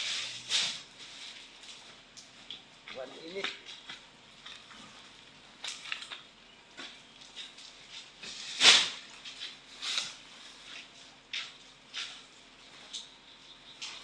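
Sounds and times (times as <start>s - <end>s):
cement sacks handled: 5.7s - 13.0s.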